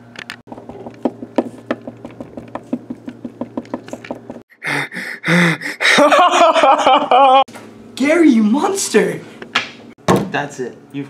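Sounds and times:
person vocal bursts: 4.5 - 6.0.

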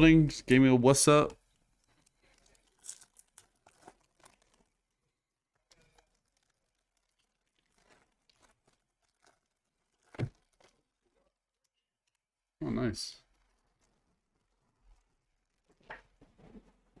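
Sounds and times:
foil wrapper crinkling: 1.4 - 12.2, 13.3 - 15.8.

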